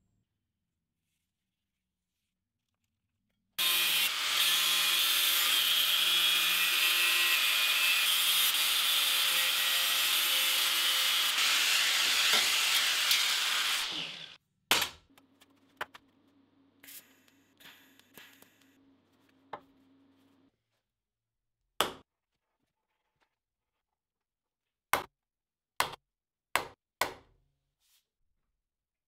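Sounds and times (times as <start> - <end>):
angle grinder cutting steel: 3.6 - 14.4.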